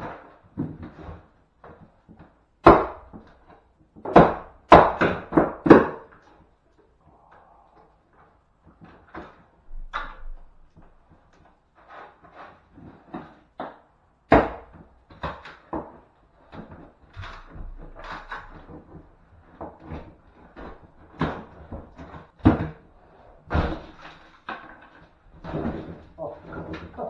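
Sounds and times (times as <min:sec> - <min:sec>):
knocks and bangs on wall: 0:00.0 - 0:03.3, 0:04.0 - 0:06.2, 0:13.0 - 0:16.0, 0:16.6 - 0:22.8, 0:23.4 - 0:24.7.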